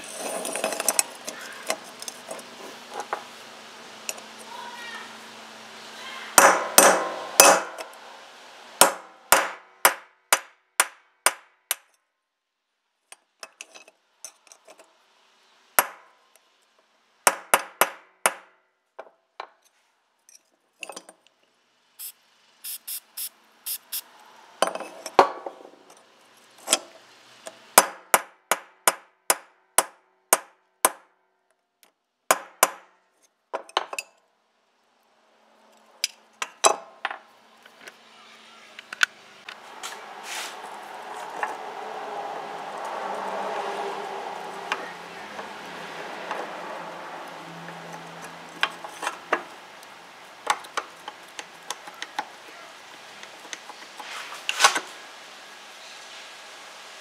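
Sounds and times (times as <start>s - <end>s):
hammer striking metal: 6.4s - 7.9s, 8.8s - 11.9s.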